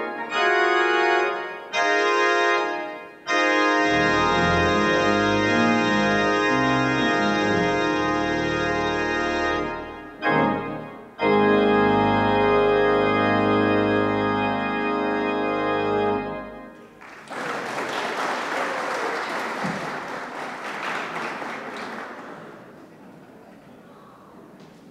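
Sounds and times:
pipe organ chords: 0.0s - 17.0s
applause: 16.8s - 23.0s.

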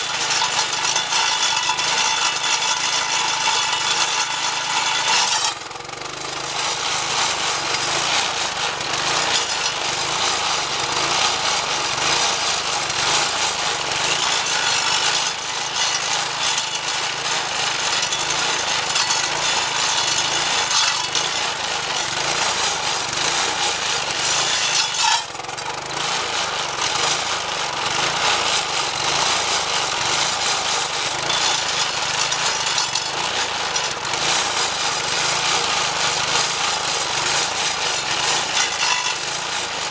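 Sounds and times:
engine running under load: 0.0s - 39.9s
saw blade grinding wood: 0.0s - 39.9s.

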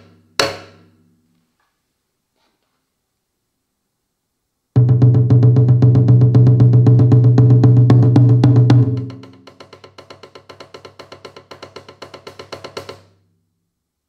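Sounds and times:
booming taiko drum strokes: 4.8s - 9.9s.

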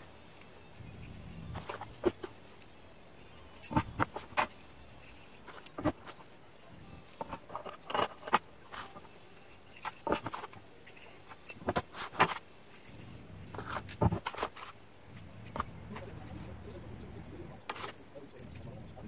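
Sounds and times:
metal bolts and nuts clinking: 1.0s - 15.7s.

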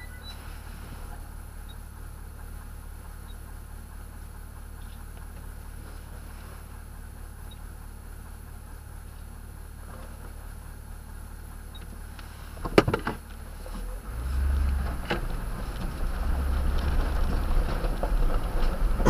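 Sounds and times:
truck engine idling: 0.0s - 19.0s
tyres rumbling on gravel: 8.0s - 19.0s
clunk: 12.6s - 13.2s.

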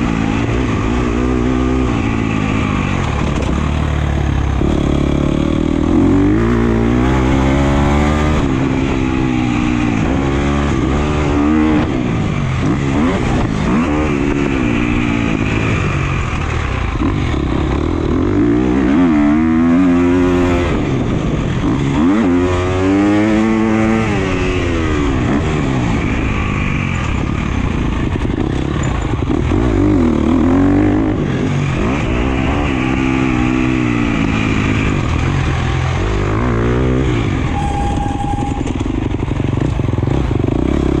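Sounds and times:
motocross engine revving: 0.0s - 26.1s.

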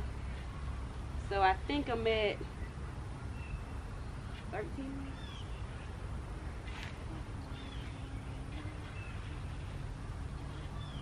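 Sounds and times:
faint low hum: 0.0s - 11.0s
steady low rumble: 0.0s - 11.0s
faint bird chirps: 2.5s - 11.0s.

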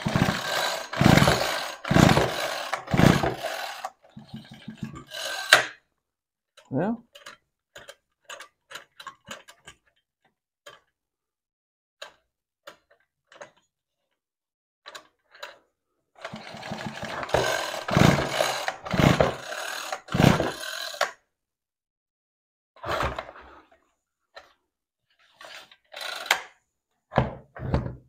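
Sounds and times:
trimmer engine cranking: 0.0s - 5.8s, 16.2s - 21.2s, 25.9s - 26.5s.

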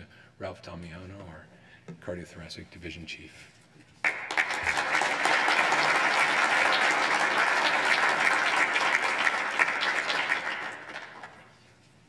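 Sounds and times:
audience applauding: 4.0s - 11.5s.

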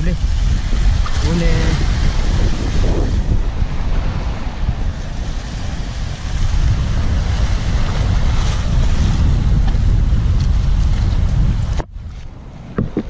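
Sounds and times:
surf washing over rocks: 0.0s - 13.0s
wind buffeting microphone: 0.0s - 13.0s.

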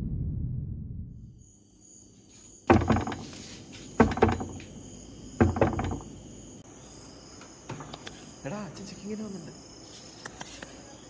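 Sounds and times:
crickets chirping: 1.2s - 11.0s
knocking on a door: 2.7s - 3.4s, 4.0s - 4.7s, 5.4s - 6.1s.

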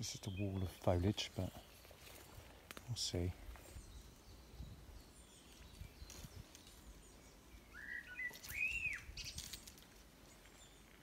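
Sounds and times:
small bird warbling and whistling: 7.7s - 9.6s.

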